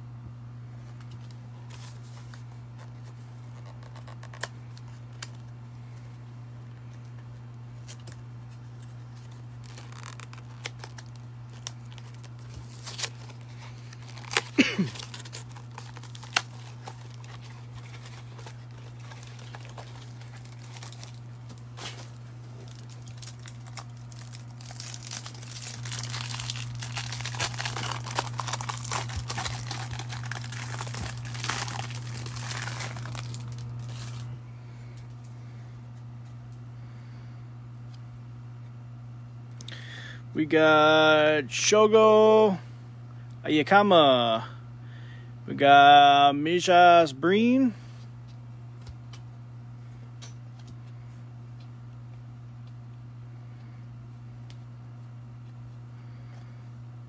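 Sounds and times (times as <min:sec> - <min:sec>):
steady low hum: 0:00.0 - 0:57.0
plastic wrapper crinkling and tearing: 0:01.1 - 0:05.5, 0:08.8 - 0:34.3.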